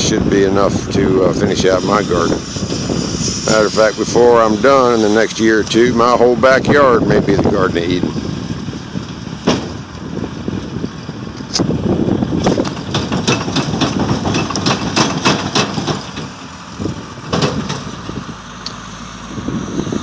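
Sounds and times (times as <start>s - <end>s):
diesel engine running: 0.0s - 20.0s
sharp knocks and rattles: 9.4s - 9.8s, 12.4s - 16.5s, 17.2s - 18.2s.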